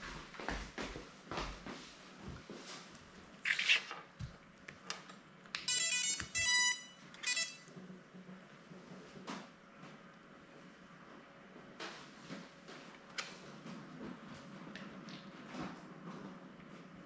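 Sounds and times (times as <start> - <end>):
drone motor startup beeps: 5.7 - 7.7.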